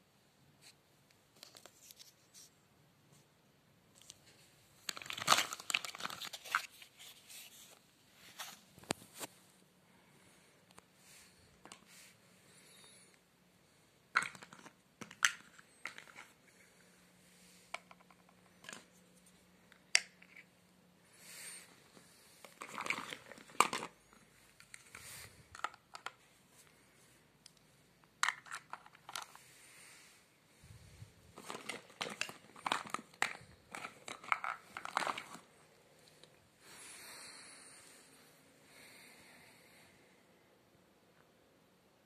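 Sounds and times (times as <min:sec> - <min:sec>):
plastic toys clicking and clattering: 0:14.1 - 0:16.4, 0:17.7 - 0:18.9, 0:22.4 - 0:24.0, 0:24.6 - 0:26.2, 0:28.2 - 0:29.4, 0:31.4 - 0:35.5.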